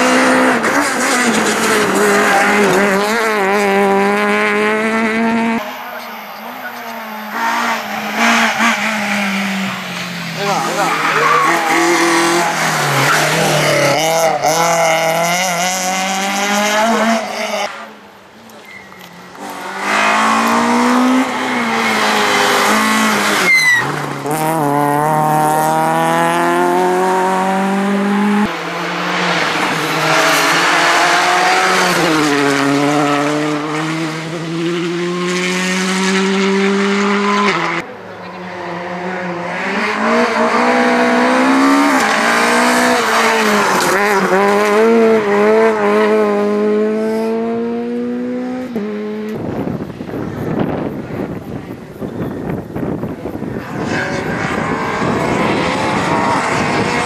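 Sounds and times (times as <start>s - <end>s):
rally car engines revving high: 0.0s - 57.0s.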